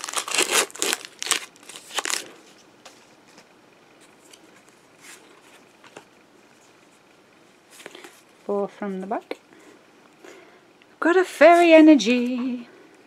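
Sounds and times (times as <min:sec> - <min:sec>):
foil wrapper crinkling: 0:00.0 - 0:02.4.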